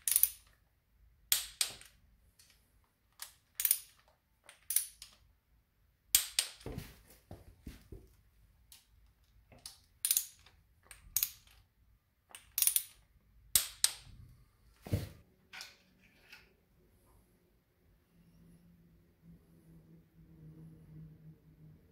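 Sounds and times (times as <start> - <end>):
ratchet wrench clicking on bolts: 0.0 - 0.6, 3.2 - 5.2, 10.0 - 10.5, 12.3 - 13.0.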